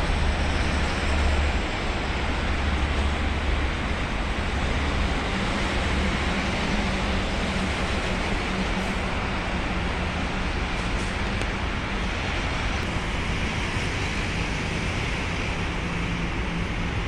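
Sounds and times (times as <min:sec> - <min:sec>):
traffic rumble: 0:00.0 - 0:17.0.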